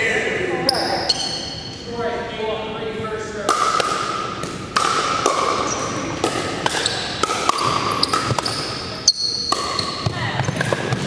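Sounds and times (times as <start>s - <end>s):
sneakers squeaking on floor: 0.6s - 1.9s, 5.4s - 11.0s.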